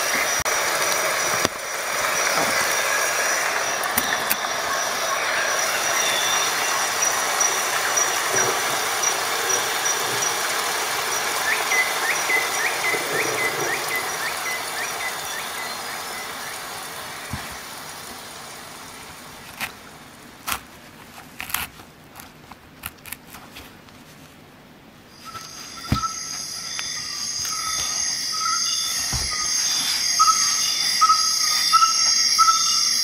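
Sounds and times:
high-pitched chirping trill: 2.1s - 8.3s, 25.2s - 33.0s.

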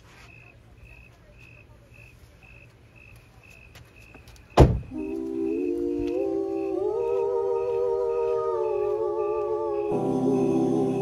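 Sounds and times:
car door slamming shut: 4.6s - 4.9s
music with hummed melody: 5.0s - 11.0s.

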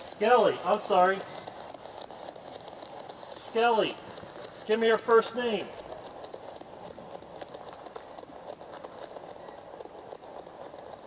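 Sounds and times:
rapid irregular clicks: 0.0s - 11.0s.

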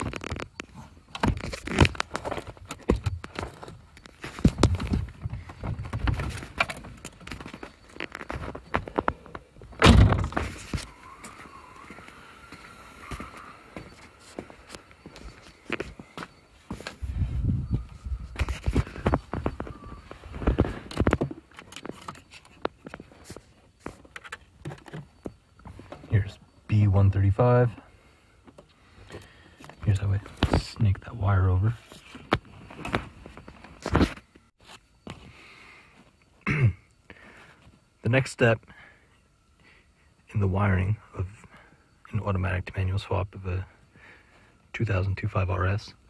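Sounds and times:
knocks scuffs and rustles: 0.0s - 26.4s
loud thump: 9.8s - 10.5s.

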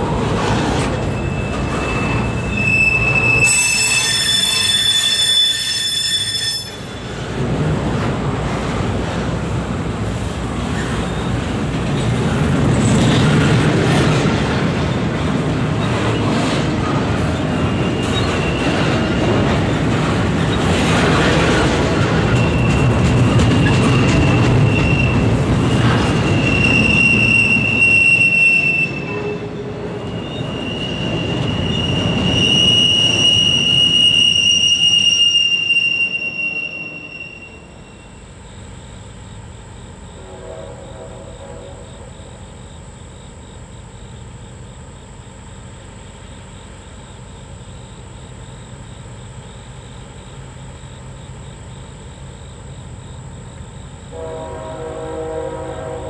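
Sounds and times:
train wheels rumbling on rails: 0.0s - 56.0s
high wheel squeal: 0.8s - 7.2s, 17.4s - 19.2s, 22.2s - 25.4s, 26.0s - 38.4s.

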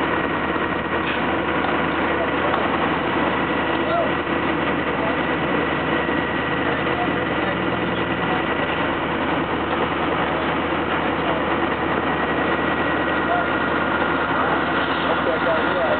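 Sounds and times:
fire engines droning: 0.0s - 15.9s.

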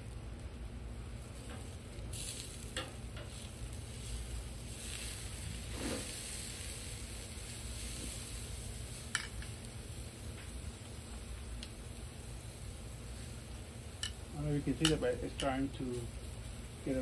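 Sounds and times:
steak sizzling on grill: 0.0s - 17.0s
metal tongs clicking: 14.0s - 14.2s, 14.8s - 15.6s.

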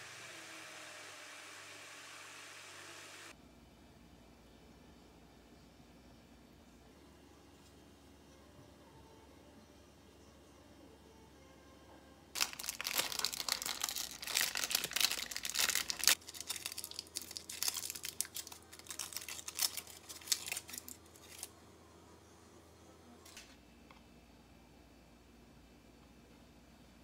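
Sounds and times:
foil wrapper crinkling: 12.4s - 21.5s.

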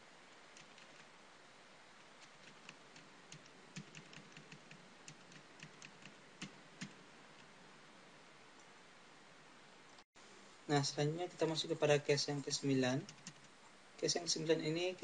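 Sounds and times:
keyboard typing clicks: 2.3s - 7.0s, 13.0s - 13.5s.

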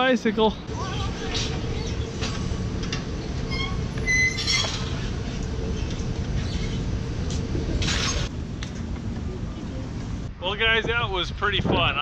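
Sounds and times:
metal rack squealing: 3.3s - 6.9s, 7.8s - 8.3s
steady low rumble: 4.8s - 12.0s.

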